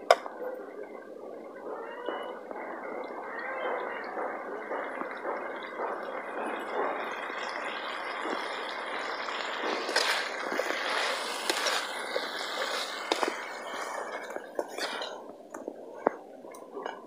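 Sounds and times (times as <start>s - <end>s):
chicken sizzling in a pan: 6.1s - 15.0s.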